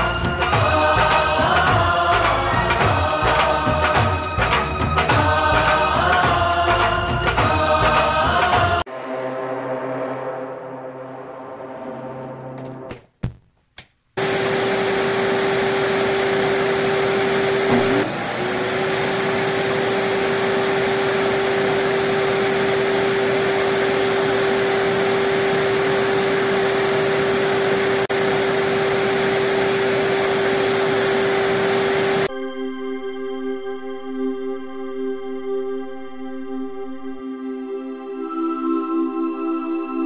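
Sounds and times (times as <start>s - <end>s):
vacuum cleaner whine: 14.2s - 32.3s.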